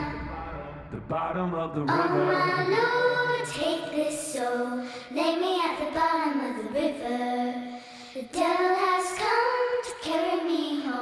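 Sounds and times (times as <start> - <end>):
high voice singing: 0.0 - 5.8.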